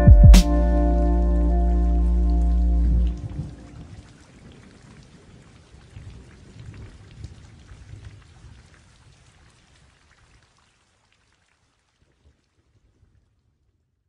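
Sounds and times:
low rumble: 0:00.0 - 0:04.0
rain falling: 0:00.0 - 0:13.0.

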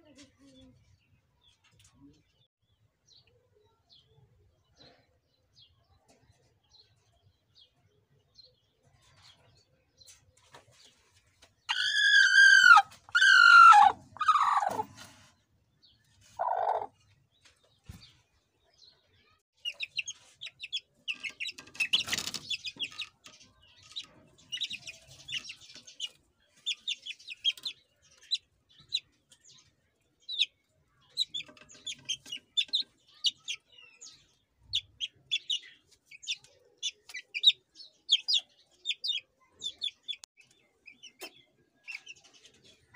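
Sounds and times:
chicks peeping: 0:09.0 - 0:15.4, 0:16.0 - 0:18.2, 0:19.6 - 0:42.9
chicken calls: 0:11.7 - 0:15.3, 0:16.2 - 0:17.0.

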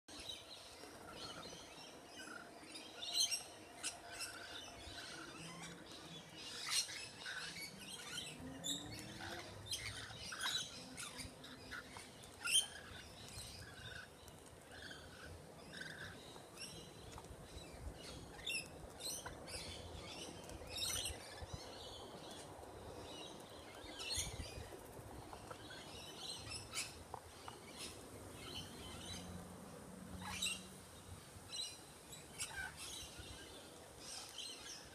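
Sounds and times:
lorikeets chirping and chattering: 0:00.1 - 0:29.4, 0:30.2 - 0:30.7, 0:31.5 - 0:34.9.

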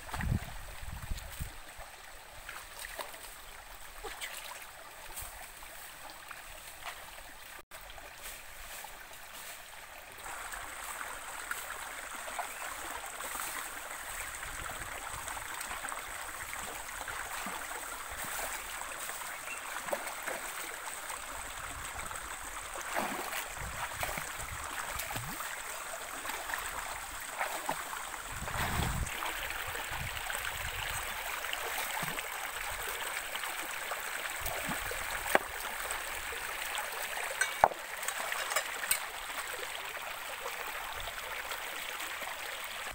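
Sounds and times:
stream running over rocks: 0:00.0 - 0:42.9
wading thumps and splashes: 0:22.8 - 0:25.5, 0:27.3 - 0:29.2.

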